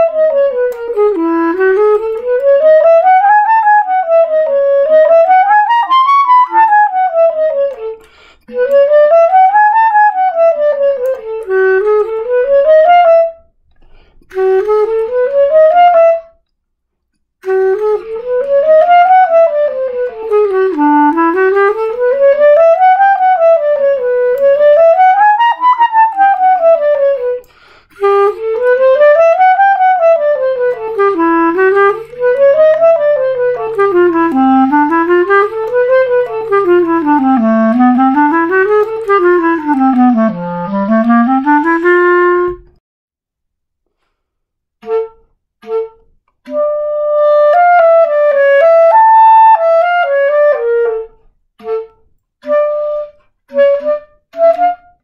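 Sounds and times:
clarinet playing scales: 0.0s - 16.4s, 17.4s - 42.8s, 44.8s - 55.0s.

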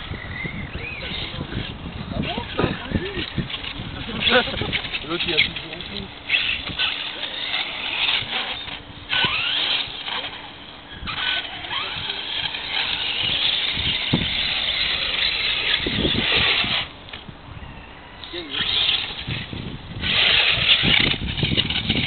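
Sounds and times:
toy truck motor revving: 0.0s - 17.0s, 18.3s - 22.0s.

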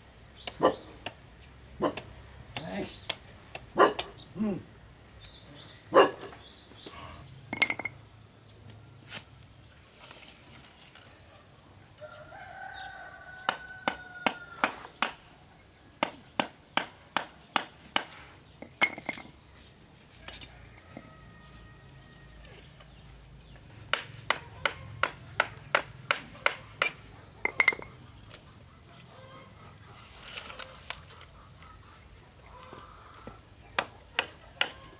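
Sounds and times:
rooster crowing: 12.0s - 14.9s, 20.3s - 22.6s.

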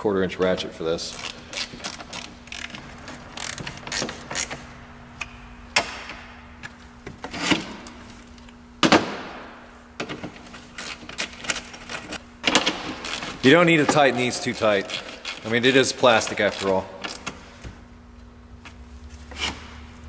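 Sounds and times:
hand ratchet clicking: 1.1s - 4.6s, 14.6s - 17.3s.

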